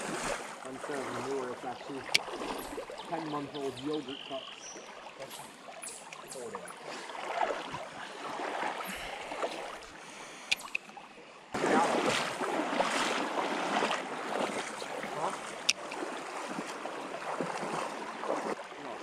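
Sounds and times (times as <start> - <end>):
stream water rushing over riffles: 0.0 - 10.8
sharp clicks: 10.5 - 10.9, 15.6 - 16.0.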